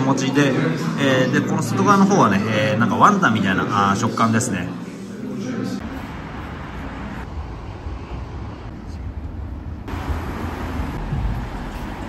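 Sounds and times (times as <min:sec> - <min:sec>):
cars passing on road: 0:05.8 - 0:12.0.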